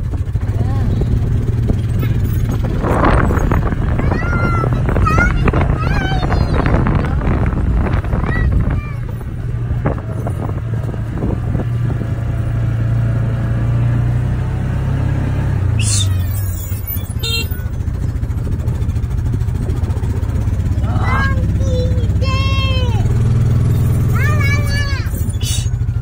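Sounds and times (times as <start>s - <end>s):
small vehicle engine running: 0.0s - 26.0s.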